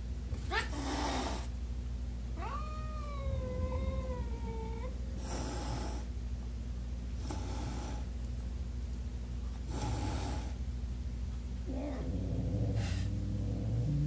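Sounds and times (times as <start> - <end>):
steady low hum: 0.0 - 14.0
cat hissing: 0.4 - 1.5, 3.0 - 6.1, 7.2 - 8.1, 9.6 - 10.6
cat yowling: 2.4 - 4.9.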